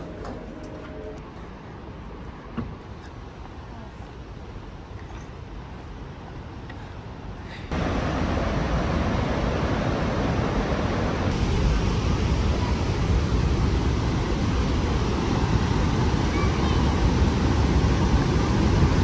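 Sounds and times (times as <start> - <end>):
waterfall rushing: 7.7 - 19.0.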